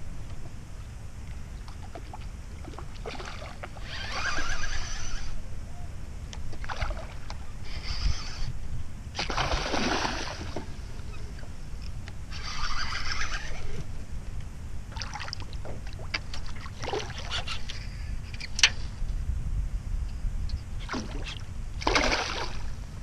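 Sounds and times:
wind rumble on microphone: 0.0 - 23.0
fish splashing in water: 9.2 - 10.7, 21.8 - 22.7.

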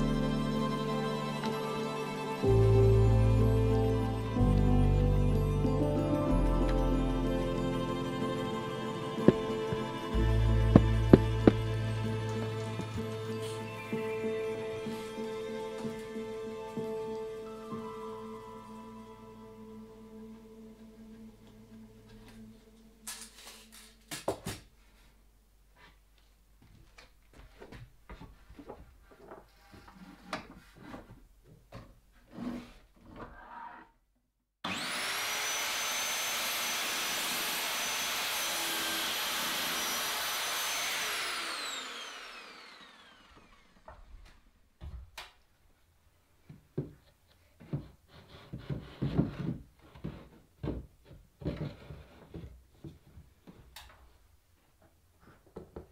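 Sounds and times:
saw spinning down whine: 6.7 - 15.7, 34.7 - 44.0
mitre saw cutting wood: 7.2 - 16.0, 34.6 - 43.9
wooden boards knocking: 9.2 - 10.0, 10.7 - 11.7.

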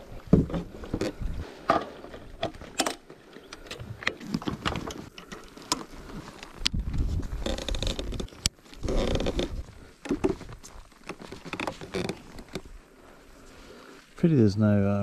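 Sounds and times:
gear clicking and rattling: 2.5 - 12.7.

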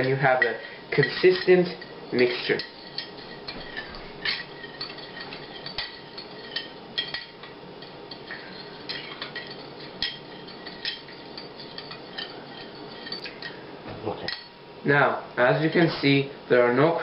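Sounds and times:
metal spoon clinking on glass bowl: 0.4 - 13.6.

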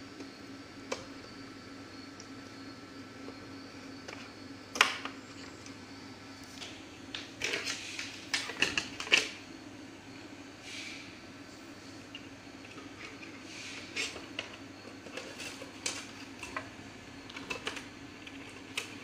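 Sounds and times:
steady low hum: 0.0 - 19.0
clicks and rattles of plastic parts: 6.6 - 9.4, 17.3 - 19.0.

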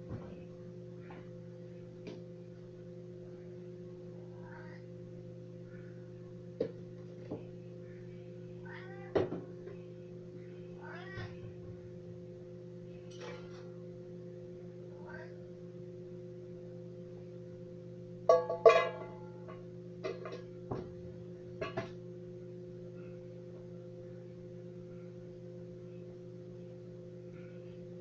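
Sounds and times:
electrical hum: 0.0 - 28.0
cat meowing: 10.8 - 11.5.

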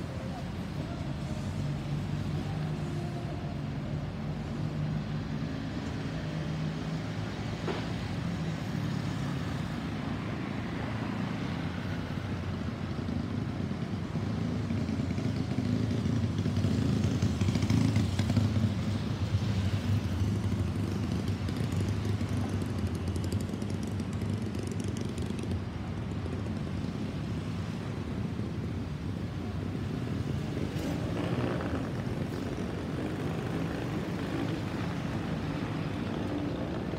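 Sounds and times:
jet airliner rumble overhead: 27.3 - 36.9.

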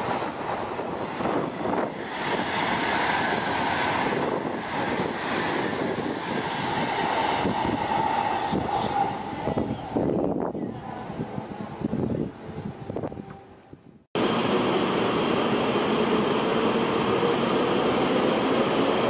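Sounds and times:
wind buffeting microphone: 0.0 - 14.1
train rushing past: 0.0 - 19.0.

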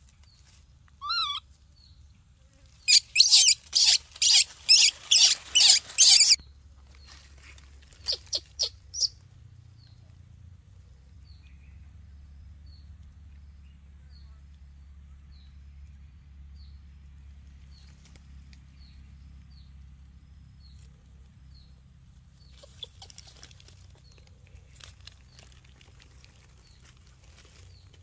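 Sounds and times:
dry leaves crackling: 0.0 - 1.8, 2.6 - 9.3, 17.5 - 19.1, 22.1 - 28.0
low steady rumble: 0.0 - 28.0
high chirping call: 1.0 - 1.4, 2.9 - 6.4.

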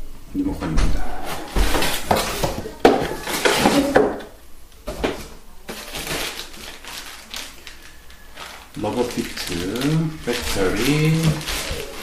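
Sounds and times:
plastic bag rustling: 1.1 - 4.0, 4.8 - 12.0.

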